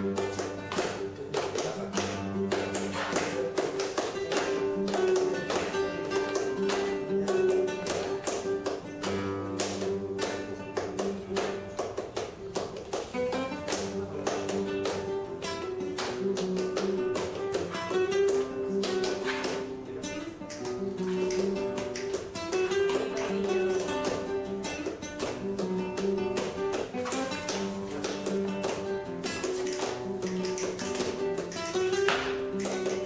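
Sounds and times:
acoustic guitar playing: 0:00.0 - 0:33.0
rhythmic hand clapping: 0:00.0 - 0:33.0.

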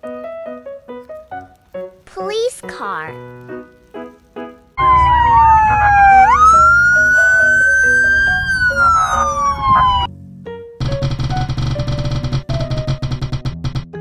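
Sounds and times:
police siren wailing: 0:04.8 - 0:10.1.

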